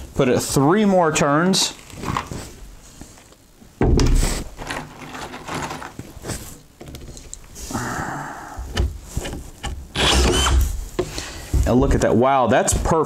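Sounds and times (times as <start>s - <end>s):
screw gun running: 10.0s - 10.7s.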